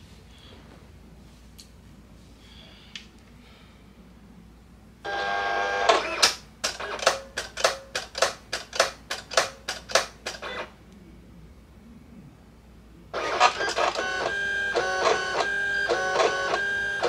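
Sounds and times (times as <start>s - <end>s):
motor whirring: 13.2s - 17.0s.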